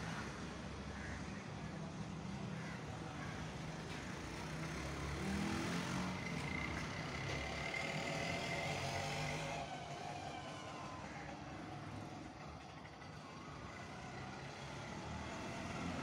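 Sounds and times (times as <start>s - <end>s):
vehicle passing: 4.2s - 11.2s.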